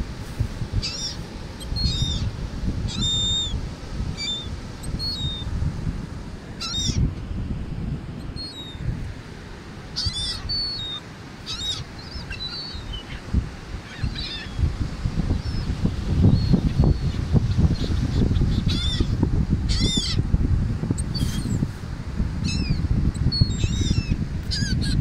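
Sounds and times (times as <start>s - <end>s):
wind: 0.0s - 25.0s
gulls calling: 0.8s - 5.5s, 6.5s - 7.1s, 8.2s - 8.9s, 9.8s - 20.3s.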